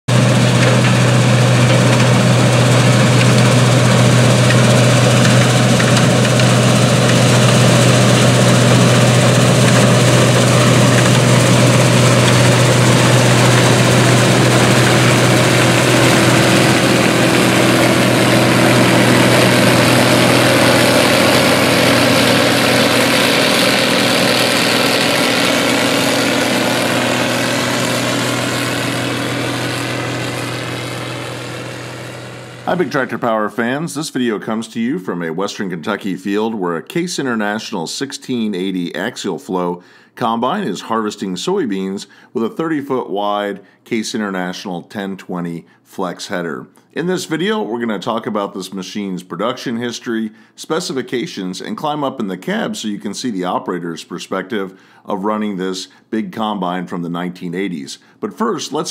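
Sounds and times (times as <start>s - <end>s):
combine harvester engine hum: 0.1s - 33.1s.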